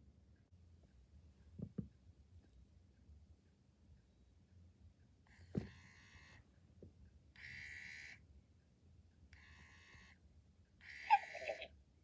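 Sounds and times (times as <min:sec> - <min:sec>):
toy electronic sounds: 0:07.4 - 0:08.2, 0:10.8 - 0:11.7.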